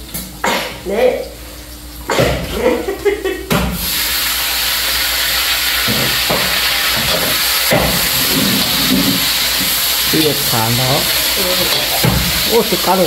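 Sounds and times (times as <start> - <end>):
food sizzling in hot oil: 3.0 - 13.0.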